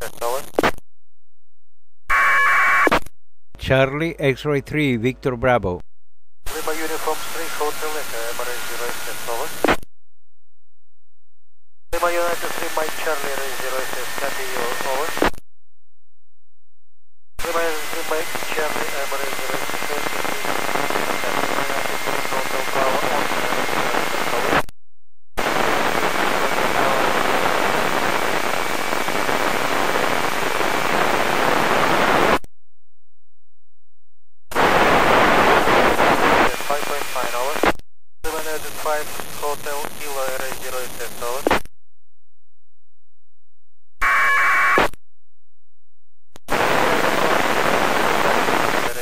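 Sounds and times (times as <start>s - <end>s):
radio receiver static hiss: 0.0s - 0.8s, 6.5s - 9.8s, 12.0s - 15.4s, 17.4s - 24.7s, 25.4s - 32.4s, 34.5s - 41.6s, 46.5s - 49.0s
short burst of radio noise: 6.5s - 9.8s, 12.0s - 15.3s, 34.5s - 41.6s.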